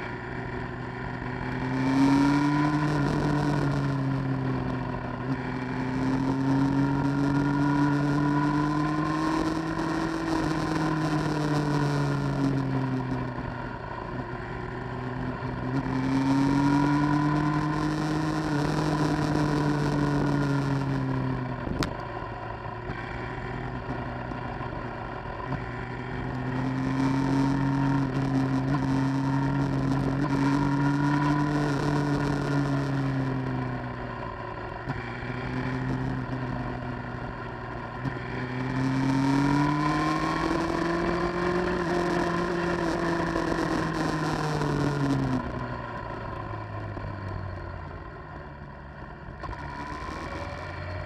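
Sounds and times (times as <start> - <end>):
motorcycle engine: 0.0 - 51.0.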